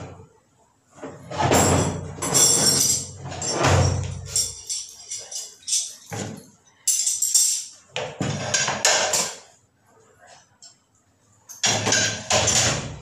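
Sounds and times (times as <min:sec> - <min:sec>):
objects jingling and clattering: 0:01.4 - 0:08.7.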